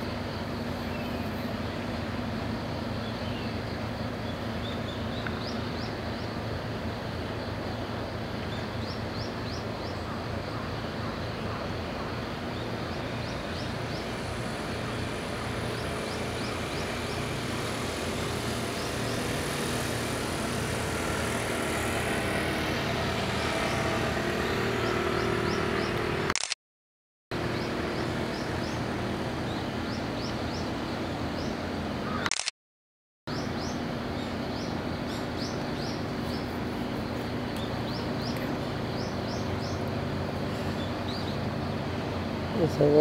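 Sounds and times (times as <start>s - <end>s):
distant outboard motors: 0.0s - 26.5s, 27.4s - 32.5s, 33.3s - 43.0s
steady outdoor hum: 0.0s - 26.6s, 27.3s - 32.5s, 33.3s - 43.0s.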